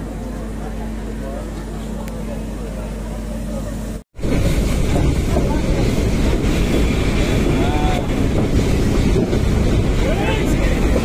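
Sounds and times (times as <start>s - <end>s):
train rumble inside carriage: 0.0s - 11.0s
wind buffeting microphone: 4.2s - 11.0s.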